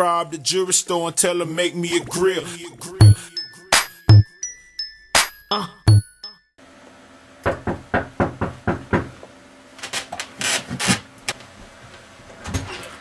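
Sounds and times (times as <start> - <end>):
knocking on door: 7.5 - 9.2.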